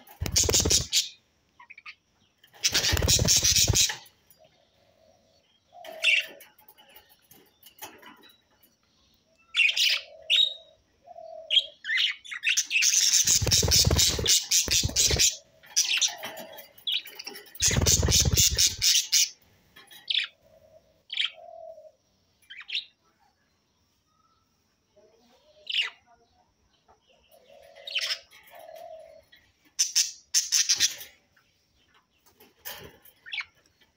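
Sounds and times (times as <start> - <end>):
budgie wings flapping: 0.0 - 1.1, 2.6 - 4.0, 13.2 - 15.4, 17.6 - 19.0
budgerigars chirping and warbling: 0.0 - 4.1, 9.6 - 19.4.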